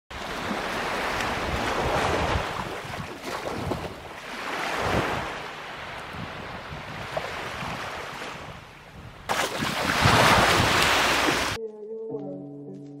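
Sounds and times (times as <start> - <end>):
small waves breaking on sand: 0.1 - 8.6, 9.3 - 11.6
wind rumbling on microphone: 1.1 - 4.1, 4.7 - 11.6.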